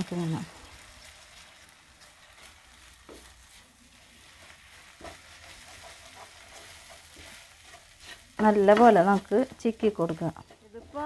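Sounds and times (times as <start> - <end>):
egg sizzling in a pan: 0.0 - 11.0
wooden spatula scraping a pan: 0.6 - 11.0.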